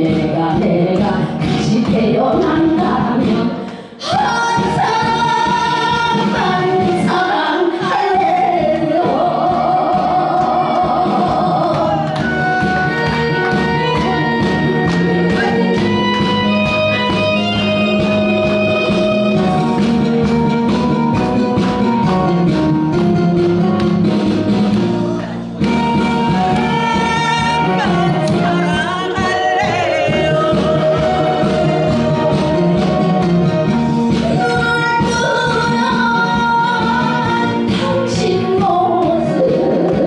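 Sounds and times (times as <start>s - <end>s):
woman singing into a microphone: 0.0s - 12.6s, 26.6s - 33.0s, 34.2s - 40.0s
backing music: 0.0s - 40.0s.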